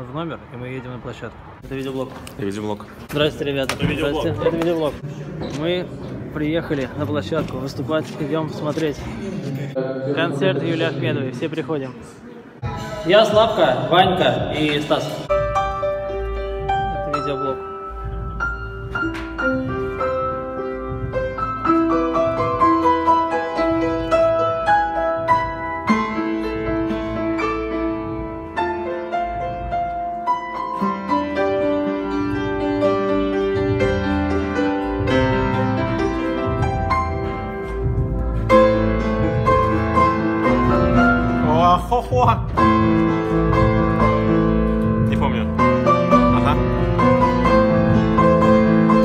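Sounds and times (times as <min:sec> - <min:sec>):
acoustic piano melody: 0:12.6 - 0:49.0.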